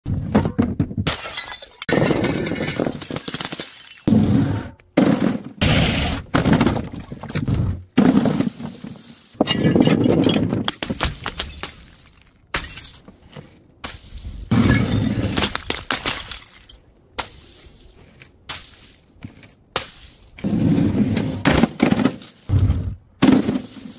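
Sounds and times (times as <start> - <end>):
glass bottles smashing: 1.1 - 4.1, 14.5 - 16.8.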